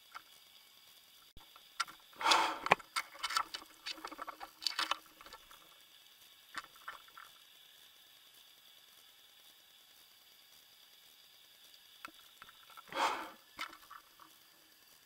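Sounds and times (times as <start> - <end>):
underwater clicks and rattles: 1.4 - 5.7, 6.5 - 7.4, 12.0 - 14.4.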